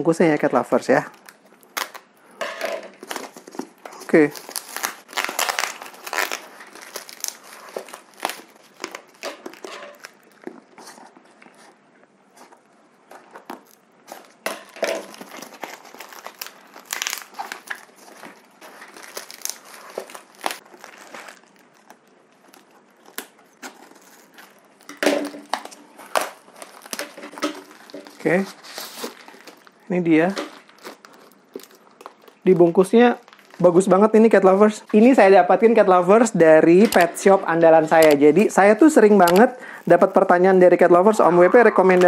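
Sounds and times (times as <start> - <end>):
cardboard and paper tearing: 13.5 - 21.6, 25.9 - 29.7.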